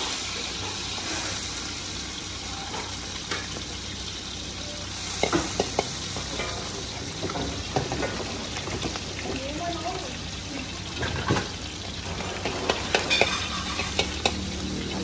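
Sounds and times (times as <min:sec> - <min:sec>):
oil sizzling in a wok: 0:00.0 - 0:15.0
metal spatula clicking on wok: 0:13.2 - 0:14.4.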